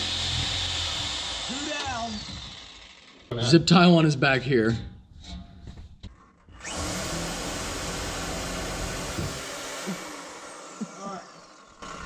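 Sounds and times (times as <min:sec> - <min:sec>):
reciprocating saw whining: 0:00.0 - 0:03.6, 0:06.6 - 0:12.0.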